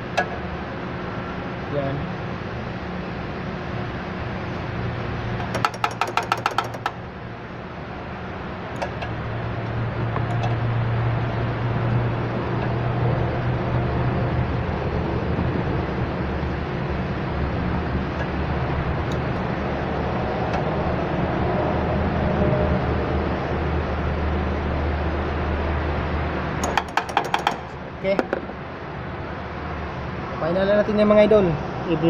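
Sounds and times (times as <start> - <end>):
low mechanical hum: 0.0 - 32.0
sharp metallic clicks: 5.4 - 7.0, 26.6 - 27.8.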